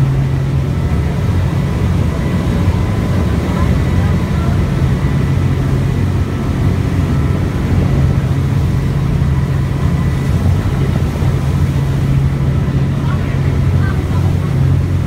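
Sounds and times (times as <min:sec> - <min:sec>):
ferry engine low hum: 0:00.0 - 0:15.0
rushing water from wake: 0:00.0 - 0:15.0.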